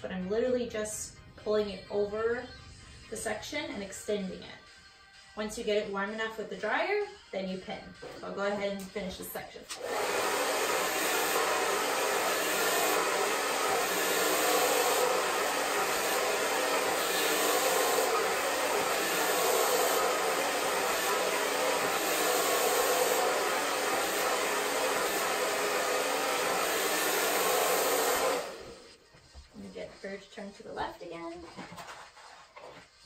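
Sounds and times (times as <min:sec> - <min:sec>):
hair dryer running: 0:09.7 - 0:28.9.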